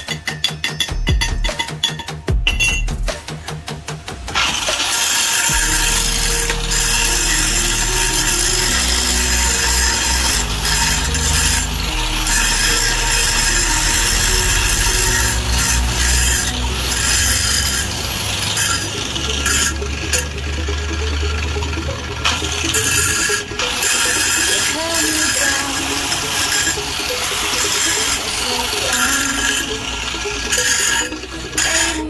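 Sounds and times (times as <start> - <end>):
angle grinder grinding steel: 0.0 - 32.0.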